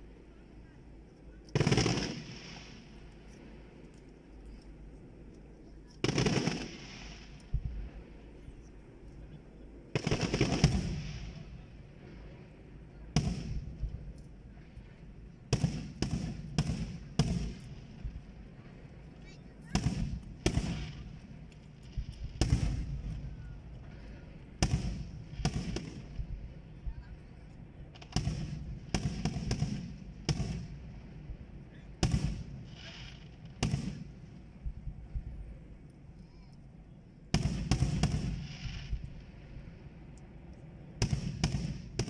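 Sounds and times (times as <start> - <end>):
firework shells bursting: 1.5 - 4.8, 5.9 - 8.4, 9.9 - 11.8.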